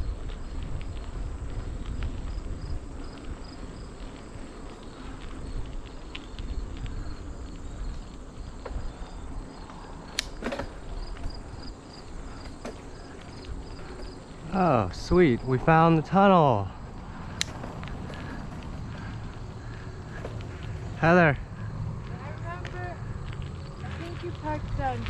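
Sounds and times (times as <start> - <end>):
insects chirping: 0.0 - 25.0
wind and riding rumble: 0.0 - 25.0
sharp clicks: 10.1 - 10.6, 17.3 - 17.9.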